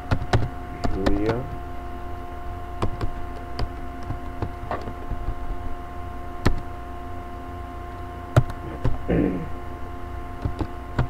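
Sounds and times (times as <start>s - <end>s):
electrical hum: 0.0s - 11.0s
keyboard keystrokes: 2.8s - 5.0s, 10.4s - 11.0s.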